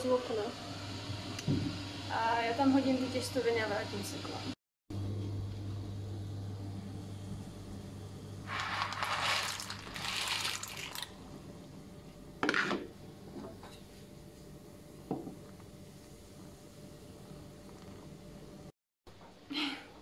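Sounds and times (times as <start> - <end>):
pasta splashing into boiling water: 8.5 - 11.2.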